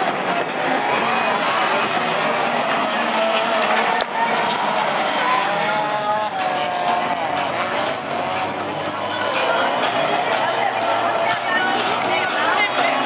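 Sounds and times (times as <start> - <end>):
race car engines revving: 0.0 - 13.0.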